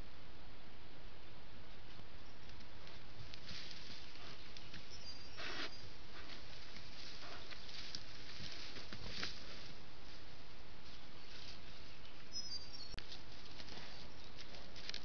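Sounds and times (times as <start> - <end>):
leaves and branches rustling: 1.1 - 15.0
steady hiss: 3.2 - 10.6.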